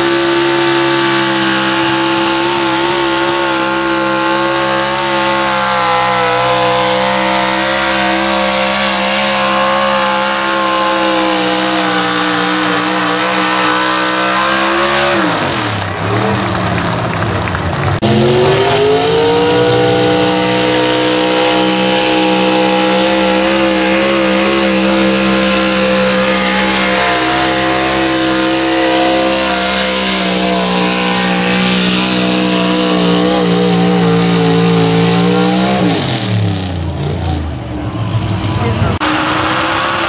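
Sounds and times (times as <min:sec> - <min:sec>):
truck engine revving at full throttle: 0:00.0 - 0:40.0.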